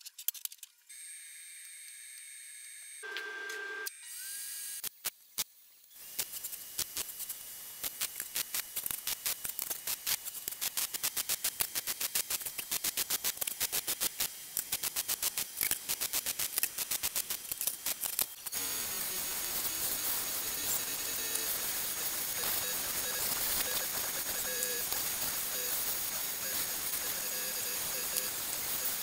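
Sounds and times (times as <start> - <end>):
welding crackle: 4.8 - 29.0
belt sander hissing: 6.0 - 29.0.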